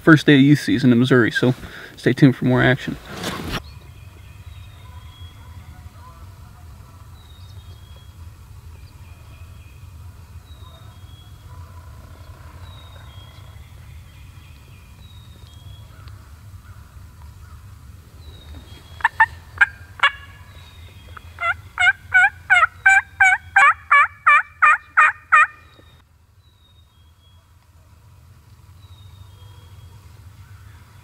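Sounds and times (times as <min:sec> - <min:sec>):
low steady rumble: 0:00.0 - 0:31.0
faint songbird chirps: 0:07.1 - 0:16.8, 0:17.4 - 0:21.9, 0:24.8 - 0:27.6, 0:28.7 - 0:31.0
turkey yelps: 0:19.0 - 0:20.4, 0:21.4 - 0:25.6.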